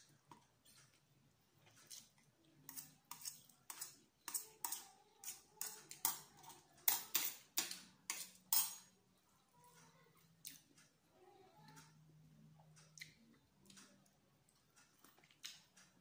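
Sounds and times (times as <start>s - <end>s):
fork and spoon clinking on plate: 2.7s - 8.9s.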